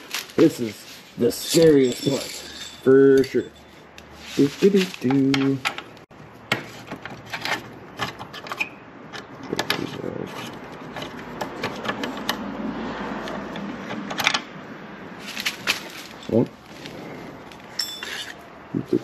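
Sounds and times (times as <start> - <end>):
rubbing and scraping: 0.0 - 5.6, 9.6 - 12.4.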